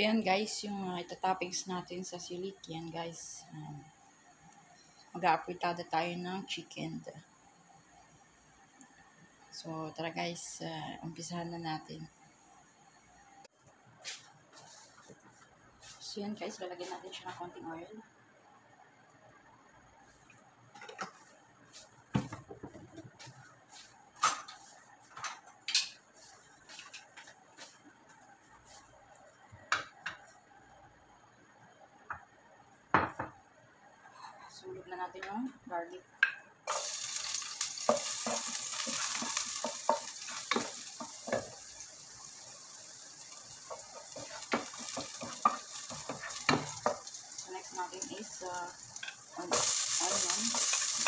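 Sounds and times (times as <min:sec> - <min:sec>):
garlic sizzling in oil: 0:36.6 - 0:51.0
wooden spatula scraping pan: 0:36.8 - 0:41.7, 0:43.6 - 0:47.2.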